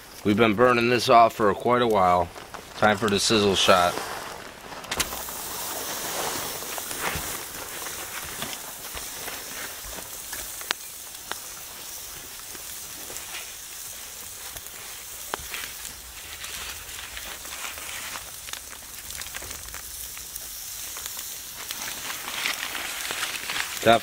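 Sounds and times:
steak sizzling on a grill: 0.6s - 4.0s, 4.9s - 24.0s
fat popping: 4.1s - 13.4s.

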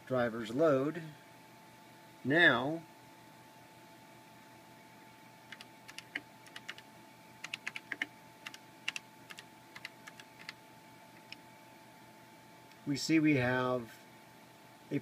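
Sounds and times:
keyboard typing clicks: 5.5s - 6.8s, 7.4s - 10.6s.

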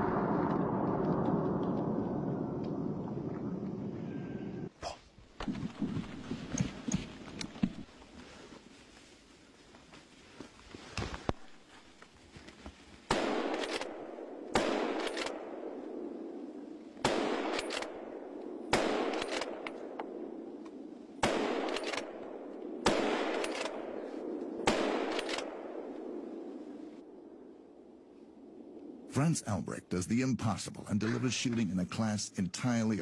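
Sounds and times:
rolling echo through woods: 0.0s - 29.2s
rifle shots with echo: 13.1s - 20.5s, 21.2s - 27.4s.

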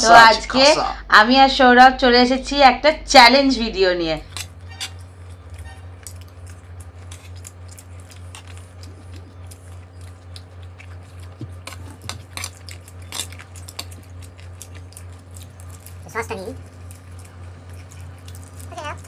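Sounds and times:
low electrical hum: 0.0s - 19.0s
spoon scraping on plates: 4.3s - 5.9s
chewing: 4.3s - 19.0s.

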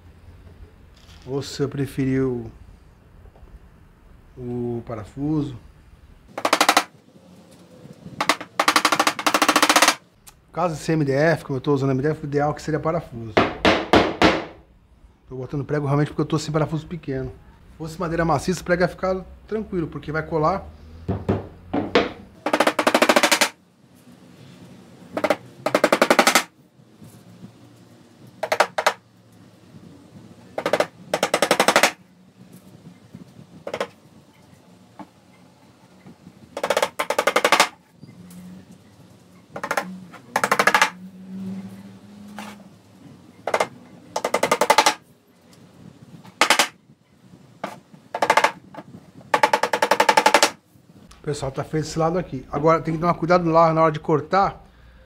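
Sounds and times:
hammer tapping nails: 6.3s - 7.0s, 8.2s - 10.0s, 13.4s - 14.6s, 21.1s - 23.6s, 25.1s - 26.5s, 28.4s - 29.0s, 30.6s - 32.0s, 33.6s - 34.0s, 36.6s - 37.8s, 39.5s - 41.0s, 43.5s - 45.0s, 46.2s - 46.8s, 47.6s - 50.6s.

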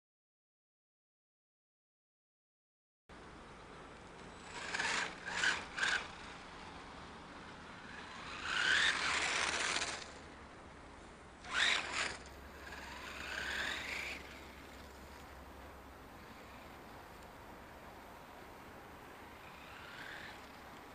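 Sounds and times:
rc car motor whining: 4.3s - 6.9s, 7.6s - 10.2s, 11.4s - 15.4s, 16.2s - 17.3s, 19.3s - 20.9s
tyre noise on asphalt: 11.0s - 17.4s.

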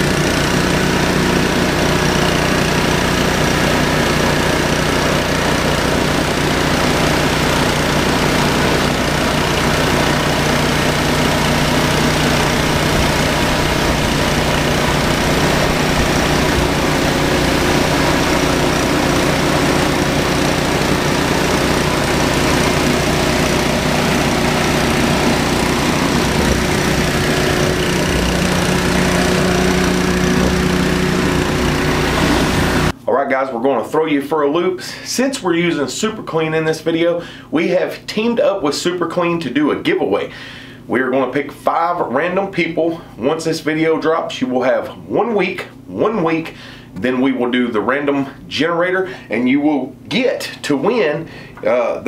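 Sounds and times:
water spraying on concrete: 0.0s - 32.9s
pressure washer running: 0.0s - 33.0s.

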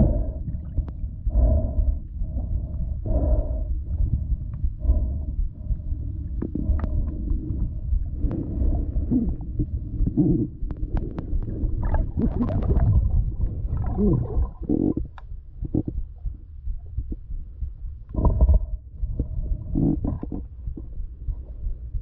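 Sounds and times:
underwater rumble of moving water: 0.0s - 22.0s
sharp clicks and ticks: 0.7s - 2.0s, 4.0s - 17.2s
bubbly gurgles: 8.4s - 15.9s.

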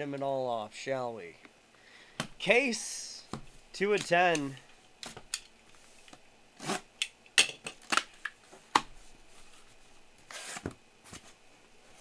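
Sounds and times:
box cutter slitting tape: 6.6s - 6.9s, 10.3s - 10.7s.

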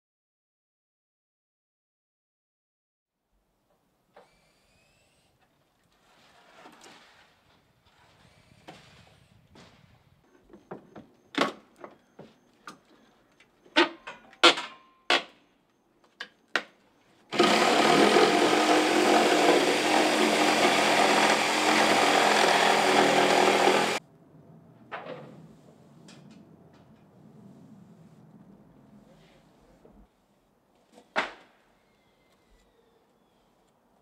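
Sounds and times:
power drill running: 17.3s - 24.0s.

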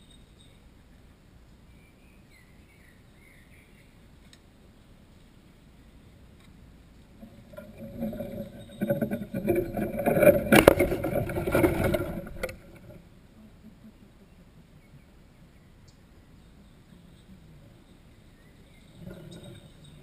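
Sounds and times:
camera handling rubbing and scraping: 7.5s - 13.0s.

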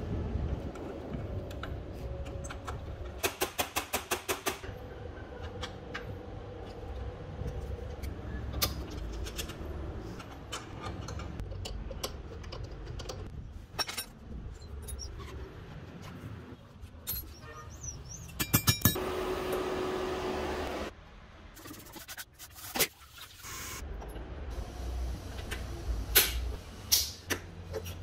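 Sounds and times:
tools and metal parts clicking: 5.3s - 15.4s, 16.8s - 19.0s.

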